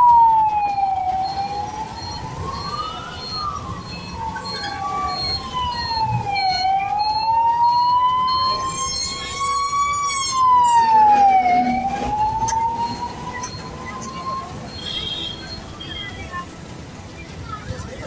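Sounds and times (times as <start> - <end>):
siren wailing: 0.0 - 15.9
street traffic: 0.0 - 18.0.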